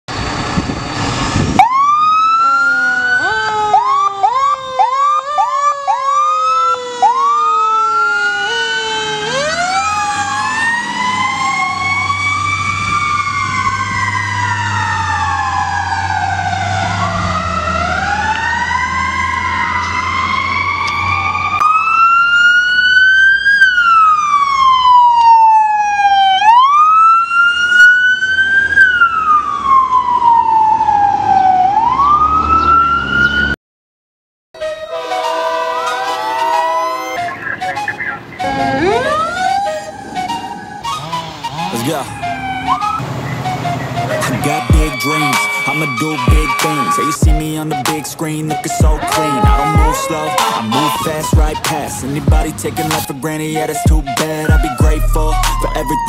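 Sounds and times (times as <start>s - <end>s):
electronic sirens yelping and wailing: 1.0s - 33.6s, 34.6s - 56.0s
low engine hum: 45.9s - 56.0s.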